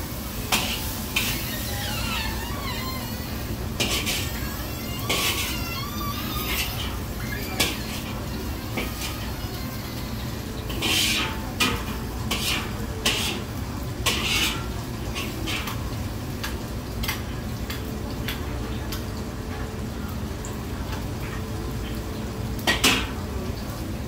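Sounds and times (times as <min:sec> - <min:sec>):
kitchen equipment rumble: 0:00.0 - 0:24.0
metal utensils clattering on pans: 0:00.4 - 0:19.6, 0:22.6 - 0:23.7.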